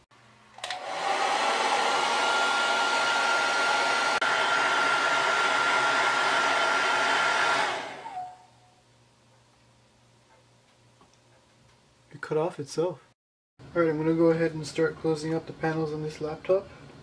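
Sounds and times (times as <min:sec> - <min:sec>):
hair dryer blowing: 0:00.6 - 0:08.5.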